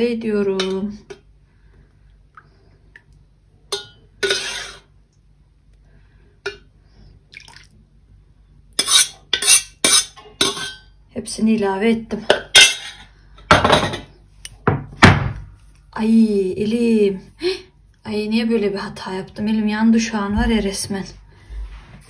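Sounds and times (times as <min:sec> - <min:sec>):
metal ladle clattering on pot: 0:03.7 - 0:04.8, 0:12.3 - 0:14.1
liquid splashing: 0:07.3 - 0:07.8.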